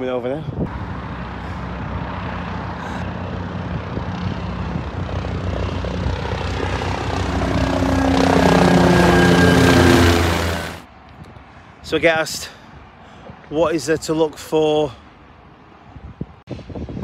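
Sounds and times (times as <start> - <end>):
helicopter rotor drone: 0.7 - 10.8.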